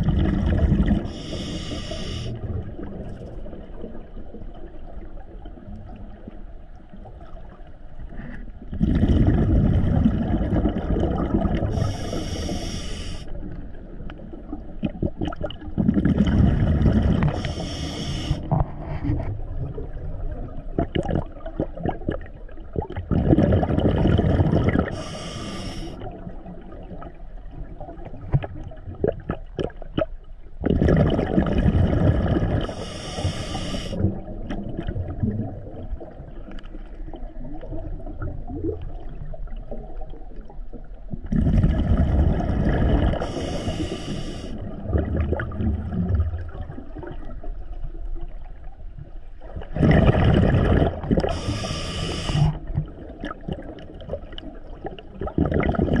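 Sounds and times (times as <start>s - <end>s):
exhaled bubbles rumbling: 0.0s - 56.0s
faint bubble crackle: 0.0s - 56.0s
regulator inhalation hiss: 1.1s - 2.4s, 11.8s - 13.3s, 17.3s - 18.4s, 24.9s - 26.0s, 32.7s - 34.0s, 43.2s - 44.6s, 51.3s - 52.6s.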